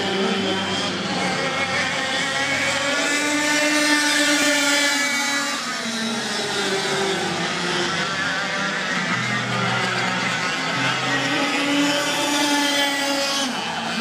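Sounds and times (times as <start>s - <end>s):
kart engines racing past: 0.0s - 14.0s.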